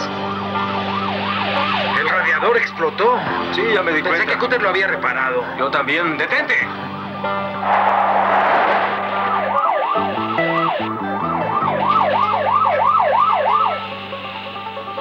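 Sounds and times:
police siren yelping: 0.2 - 2.3, 7.6 - 14.0.

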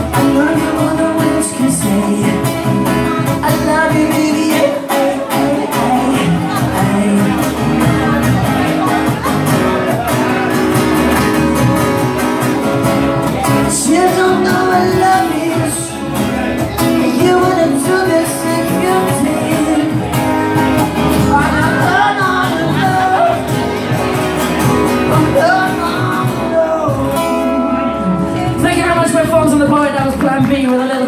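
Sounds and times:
man singing: 0.0 - 11.8, 12.4 - 31.0
strummed acoustic guitars: 0.0 - 31.0.

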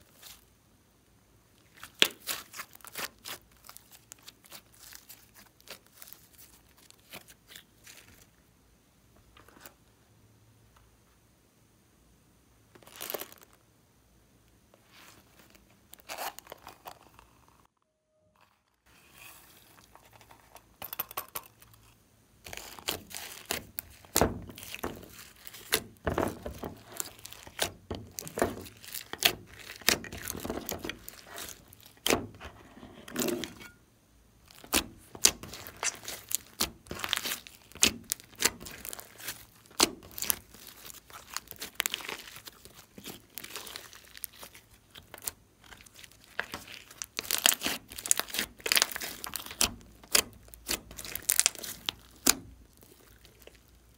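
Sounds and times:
hands squishing slime: 1.6 - 8.2, 22.4 - 32.5, 34.5 - 53.9.

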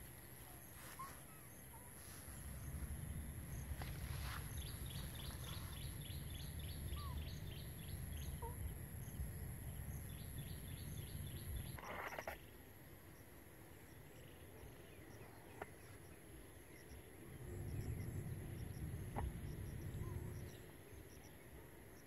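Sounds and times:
low rumble: 2.3 - 11.8, 17.0 - 20.6.

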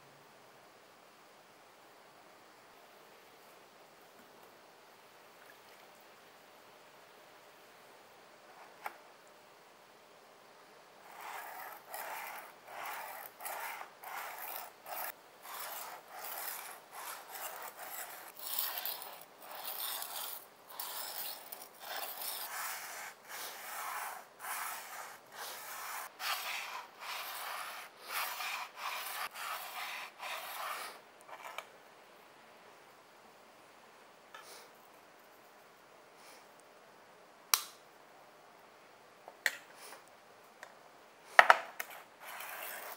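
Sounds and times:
abrasive block scraping knife blade: 11.1 - 31.6.

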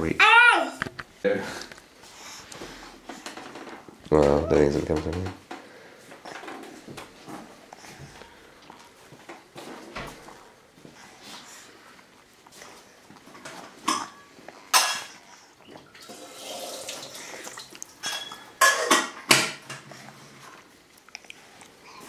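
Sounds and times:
dishes clinking and knocking: 18.0 - 19.8.

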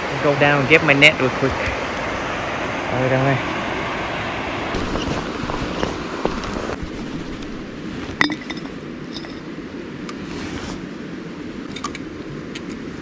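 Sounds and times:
river water rushing: 0.0 - 10.0.

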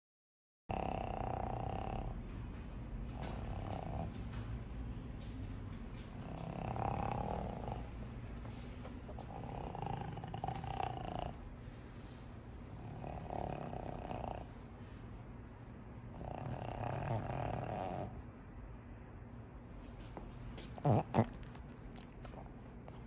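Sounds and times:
dog breathing noisily: 6.2 - 18.3, 19.9 - 23.0.

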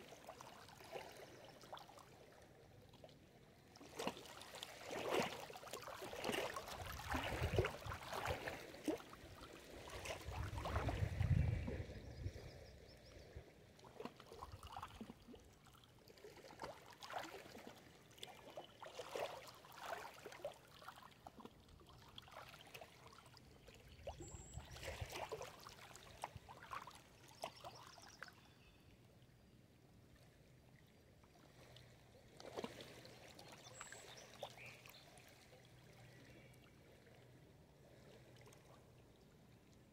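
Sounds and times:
waves lapping against stones: 3.8 - 12.0, 13.8 - 23.4.

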